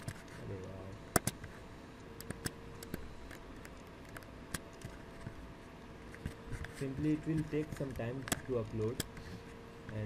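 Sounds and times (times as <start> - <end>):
faint steady hum: 0.0 - 10.0
computer mouse clicking: 2.1 - 5.0.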